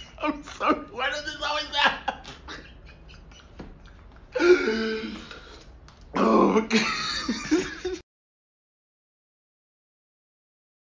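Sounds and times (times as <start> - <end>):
man making rough throat sounds: 6.1 - 6.8.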